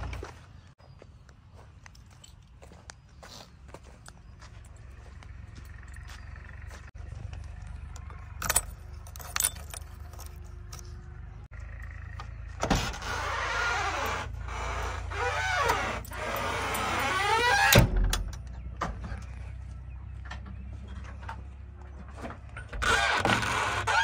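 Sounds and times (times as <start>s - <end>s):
door scraping and creaking: 12.5s - 19.4s, 22.0s - 24.0s.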